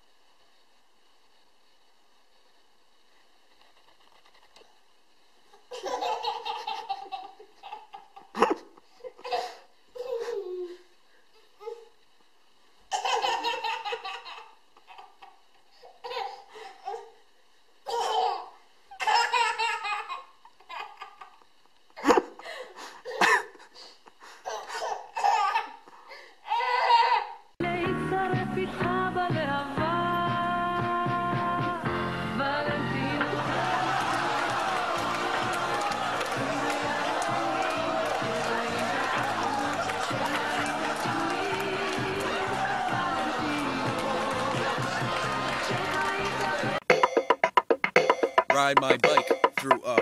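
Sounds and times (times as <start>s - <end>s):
toddler belly-laughing: 5.7s - 10.7s
music: 27.6s - 50.0s.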